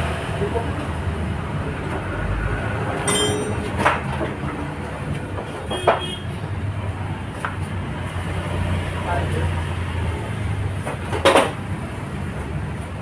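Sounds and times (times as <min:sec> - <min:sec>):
sharp metal clanks: 0:03.0 - 0:04.0.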